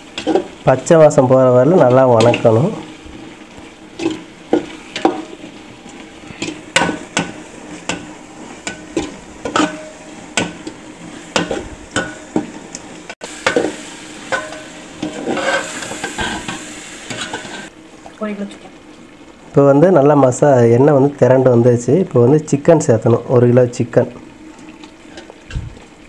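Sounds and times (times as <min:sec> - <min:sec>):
light sizzle: 0:00.0 - 0:26.0
ladle scraping metal pot: 0:14.3 - 0:17.7.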